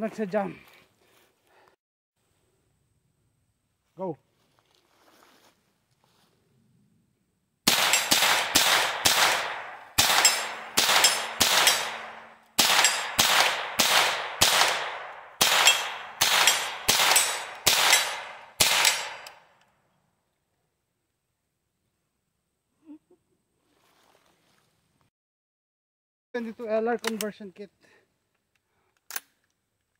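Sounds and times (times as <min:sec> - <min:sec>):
rifle gunshots: 0:07.7 - 0:19.4
ringing echo of shots: 0:07.7 - 0:19.5.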